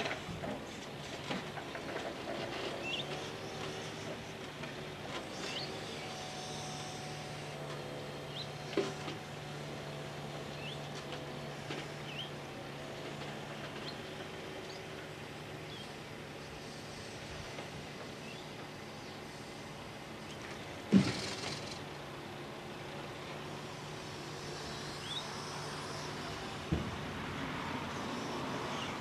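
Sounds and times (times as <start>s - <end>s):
hydraulic crane grabbing logs: 0.0s - 27.7s.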